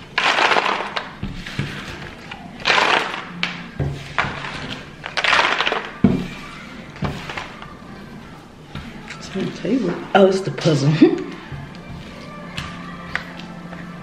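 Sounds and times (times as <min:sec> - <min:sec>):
puzzle pieces rustling on a table: 0:00.0 - 0:07.7.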